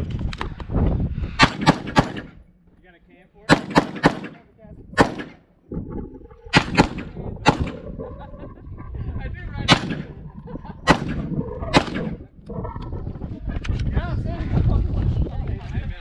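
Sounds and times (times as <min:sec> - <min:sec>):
rifle shots: 0:01.4 - 0:02.4, 0:03.5 - 0:05.4, 0:06.5 - 0:07.8, 0:09.7 - 0:10.2, 0:10.9 - 0:12.2.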